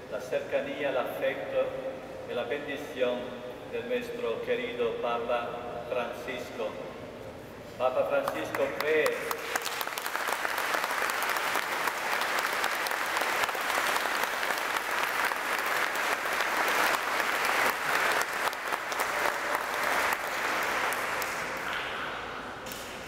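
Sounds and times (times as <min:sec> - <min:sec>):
congregation applauding: 0:08.2 - 0:22.3.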